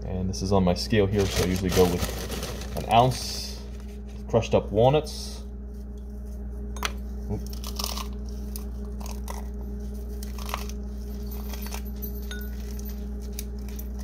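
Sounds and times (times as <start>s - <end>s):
low hum: 0.0s - 14.0s
walnuts crunching: 1.1s - 3.1s, 7.3s - 14.0s.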